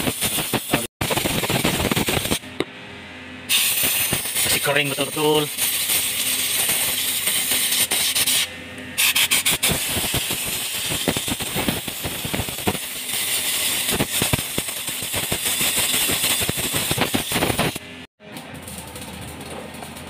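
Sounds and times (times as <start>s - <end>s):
compressed air blow gun hissing: 3.5s - 4.6s.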